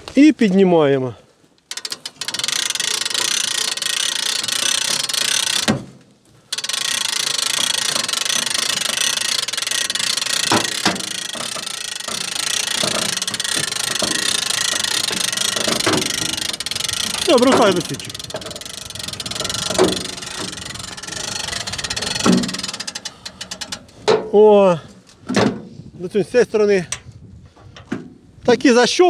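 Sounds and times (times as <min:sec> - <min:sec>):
diesel tractor engine running: 0:07.1 - 0:24.1
metal knocks: 0:09.8 - 0:24.4.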